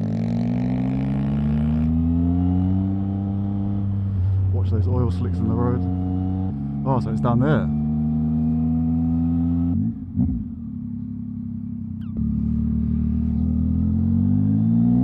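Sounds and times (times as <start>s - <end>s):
motorcycle engine revving: 0.0s - 15.0s.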